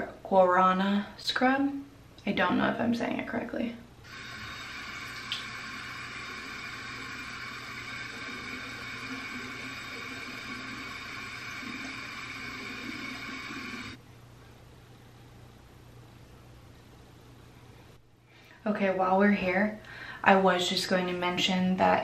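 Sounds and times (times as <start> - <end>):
water running from a tap: 4.1 - 14.0.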